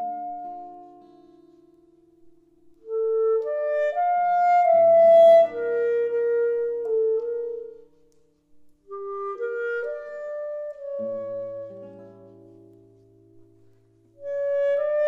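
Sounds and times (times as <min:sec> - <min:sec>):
clarinet melody: 0:00.0 - 0:15.0.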